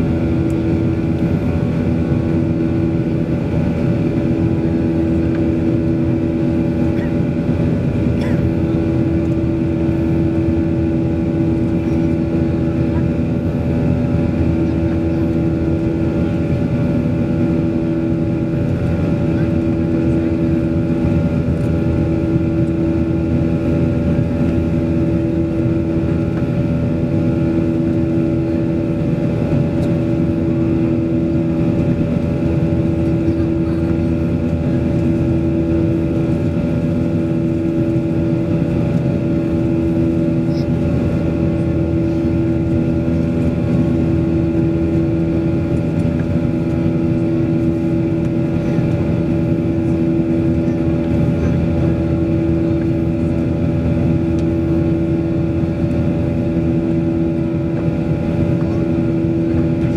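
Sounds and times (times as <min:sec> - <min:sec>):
airplane cabin engine drone: 0:00.0 - 0:59.9.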